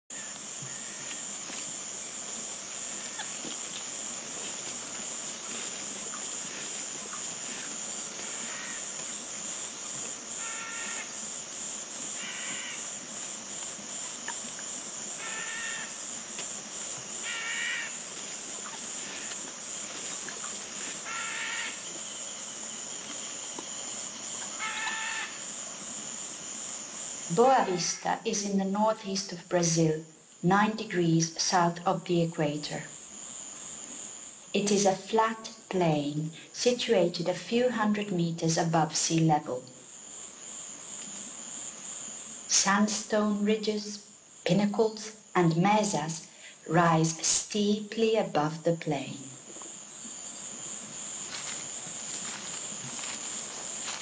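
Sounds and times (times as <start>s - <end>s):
insects droning: 0.1s - 54.0s.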